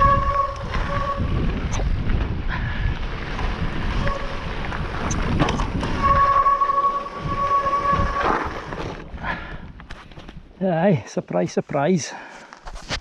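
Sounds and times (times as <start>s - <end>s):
disc brakes squealing: 0.0s - 1.9s, 4.0s - 8.9s
bike rumbling over stones: 0.0s - 9.2s.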